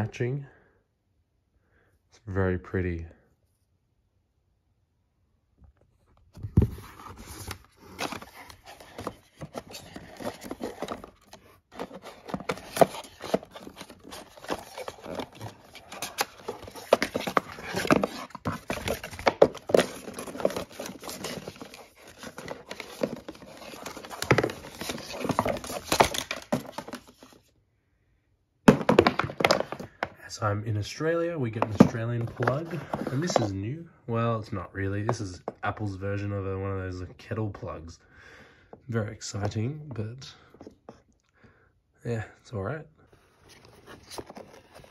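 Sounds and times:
cardboard and paper rustling: 6.3s - 27.5s, 28.7s - 30.2s, 30.8s - 33.7s, 43.1s - 44.9s.

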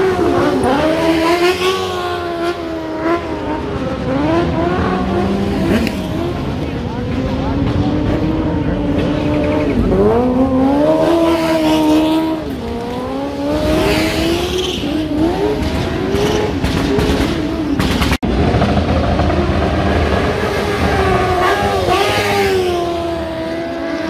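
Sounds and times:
motorcycle engine revving: 0.0s - 24.0s
tyre squeal: 13.8s - 15.1s.

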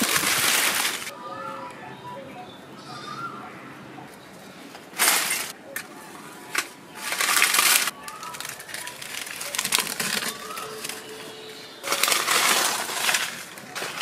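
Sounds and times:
dry leaves rustling: 0.0s - 1.7s, 4.1s - 14.0s
fire crackling: 4.1s - 14.0s.

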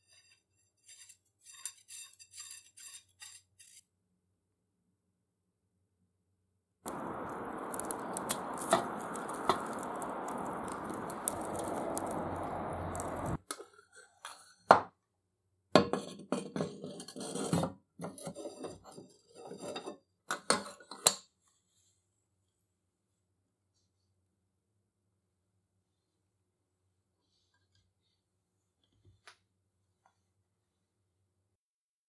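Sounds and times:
steady hiss: 6.9s - 13.4s.

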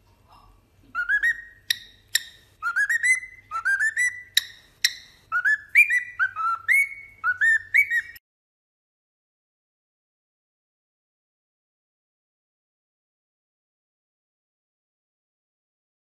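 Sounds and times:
cockatiel whistling rising notes: 1.0s - 8.2s.

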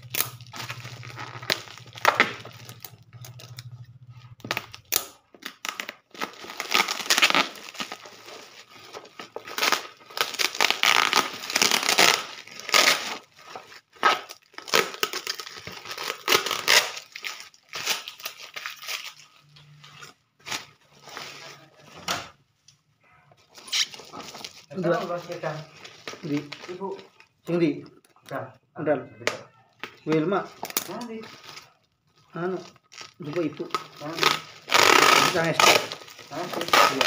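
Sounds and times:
packing tape peeling and ripping: 0.0s - 21.2s, 23.5s - 27.3s, 32.5s - 37.0s
bubble wrap crinkling: 0.0s - 22.0s, 23.4s - 27.7s, 29.5s - 37.0s.

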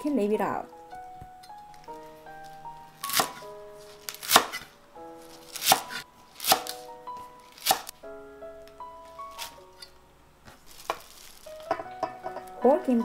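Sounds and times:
background music: 0.0s - 13.0s
knife chopping on wooden board: 3.0s - 3.4s, 4.1s - 4.7s, 5.5s - 6.8s.

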